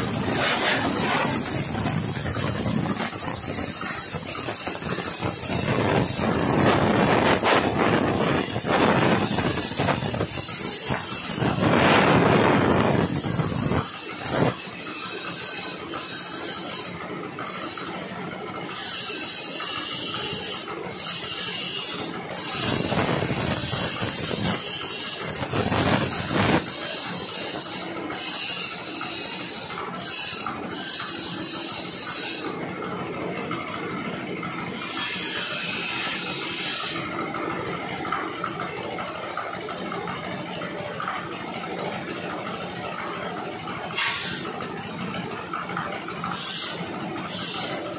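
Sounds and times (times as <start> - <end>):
plasma cutter hissing: 0.0 - 32.8, 34.5 - 37.3, 43.9 - 44.7, 46.2 - 47.9.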